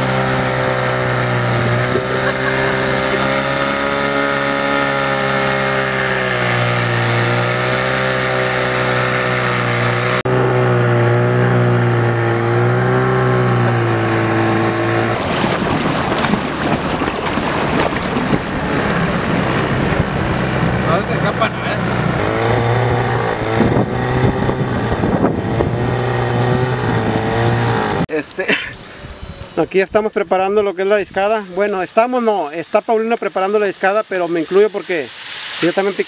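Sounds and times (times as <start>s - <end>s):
boat motor running: 0.0s - 28.0s
rough rushing noise: 13.9s - 27.2s, 27.8s - 36.0s.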